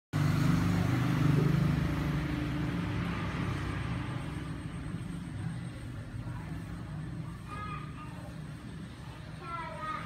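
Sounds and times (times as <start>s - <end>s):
vehicle engine humming: 0.1s - 10.0s.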